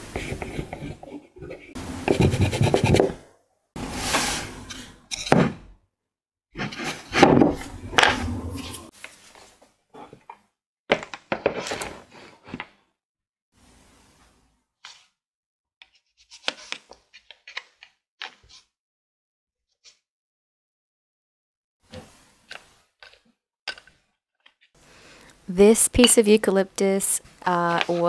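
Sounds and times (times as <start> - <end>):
pencil scratching on wood: 0.0 - 3.2.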